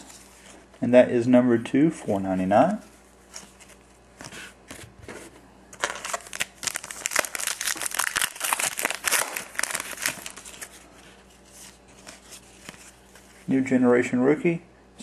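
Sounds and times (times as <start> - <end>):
foil wrapper crinkling: 5.8 - 12.8.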